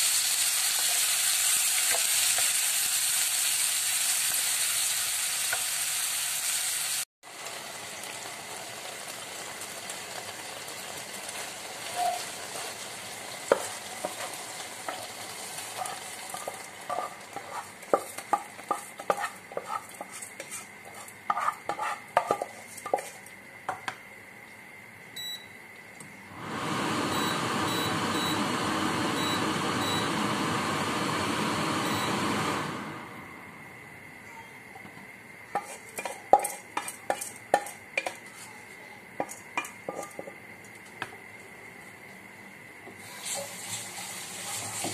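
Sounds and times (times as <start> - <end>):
chicken sizzling in frying pan: 0.0 - 23.1, 43.0 - 44.9
spatula knocking and scraping pot: 13.5 - 24.0, 35.5 - 38.6, 39.2 - 40.4, 44.4 - 44.9.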